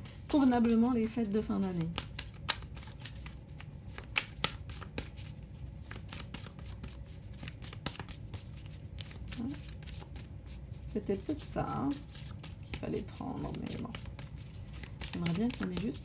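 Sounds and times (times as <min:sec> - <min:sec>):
cards being shuffled: 0:00.0 - 0:16.0
card snaps: 0:04.0 - 0:05.1.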